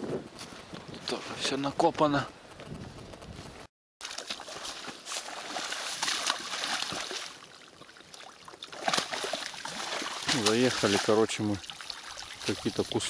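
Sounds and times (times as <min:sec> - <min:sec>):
horse splashing in mud: 0:04.0 - 0:13.0.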